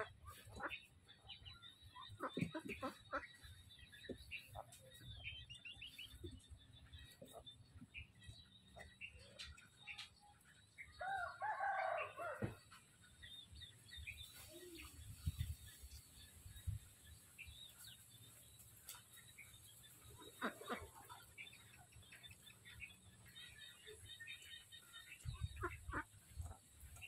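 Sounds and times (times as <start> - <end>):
rooster crowing: 11.0 - 12.5.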